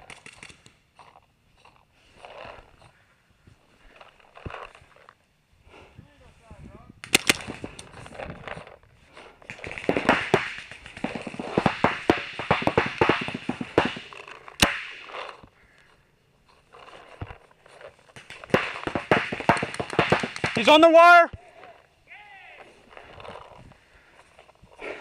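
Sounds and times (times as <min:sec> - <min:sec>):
paintball markers firing: 0:00.0 - 0:01.7, 0:07.0 - 0:08.6, 0:09.4 - 0:16.0, 0:16.8 - 0:21.1.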